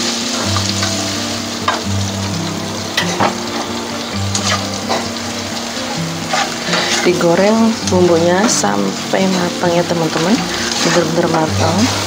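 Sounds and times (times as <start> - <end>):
spice paste sizzling in oil: 0.0 - 12.0
spatula scraping a pan: 4.3 - 5.2, 6.2 - 7.3, 9.2 - 11.4.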